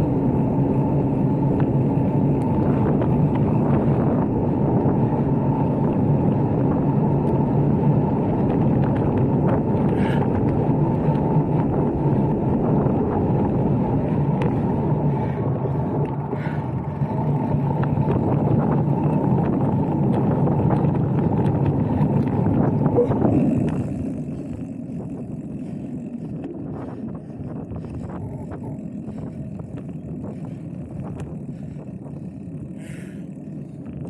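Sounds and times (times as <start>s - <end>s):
bike tyres rolling on trail: 0.0s - 34.0s
wind rumble on microphone: 0.0s - 34.0s.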